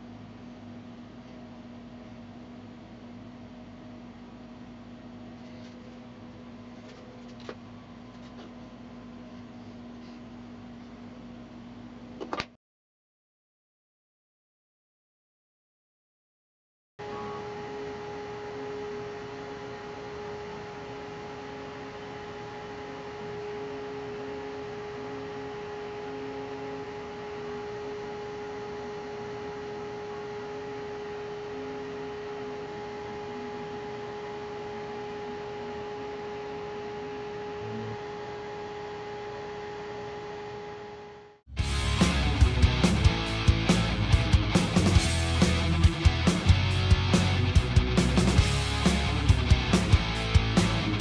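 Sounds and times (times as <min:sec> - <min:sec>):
machine whine: 0:17.0 - 0:51.0
stepper motor notes: 0:17.0 - 0:51.0
fans blowing air: 0:41.5 - 0:51.0.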